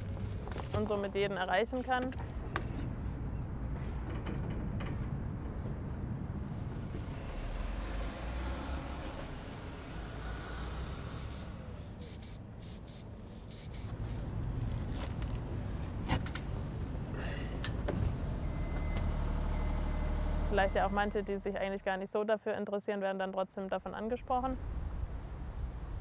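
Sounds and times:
low steady rumble: 4.6s - 22.1s, 23.8s - 26.0s
spray-paint can hissing: 6.5s - 7.6s, 8.8s - 14.3s
masking tape pulled off: 8.9s - 16.3s.

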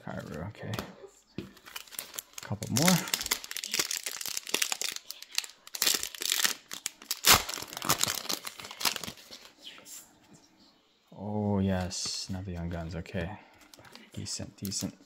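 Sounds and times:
foil wrapper crinkling and tearing: 1.6s - 9.5s.

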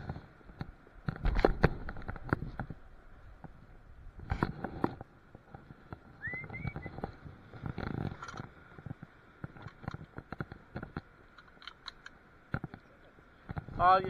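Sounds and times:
fishing tackle clicks and knocks: 0.5s - 2.8s, 6.9s - 13.8s.

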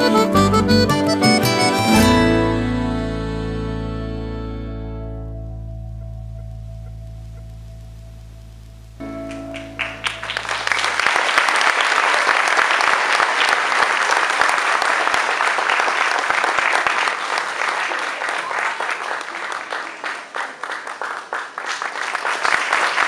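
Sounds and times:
audience applause: 9.2s - 23.0s.

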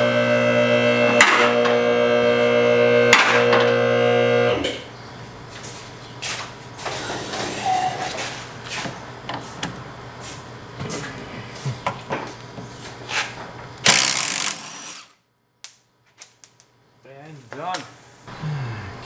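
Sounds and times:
impact wrench burst: 13.8s - 15.2s.

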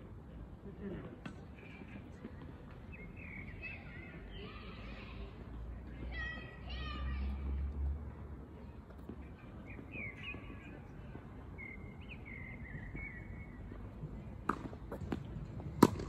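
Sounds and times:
bird chirping: 11.6s - 13.7s
tennis ball racket hits: 14.4s - 16.0s.

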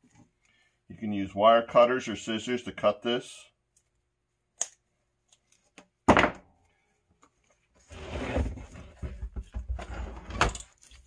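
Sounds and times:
window frame scraping on wood: 7.9s - 8.9s.

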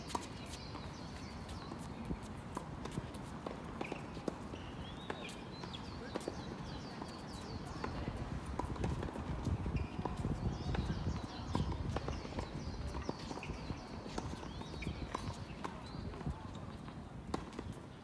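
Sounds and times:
footsteps on court: 0.1s - 17.8s
shoe squeaks: 9.7s - 10.2s.

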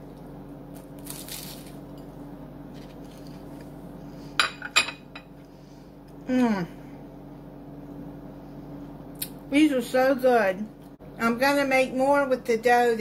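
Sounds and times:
person humming: 6.3s - 6.8s.

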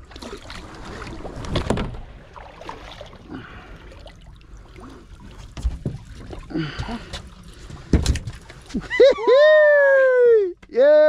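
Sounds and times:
fish splashing and thrashing: 0.0s - 9.1s.

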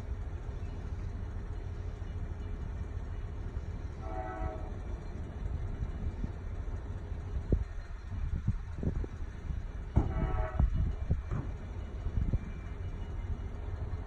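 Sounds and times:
distant train horn: 3.8s - 5.2s, 9.9s - 11.3s.

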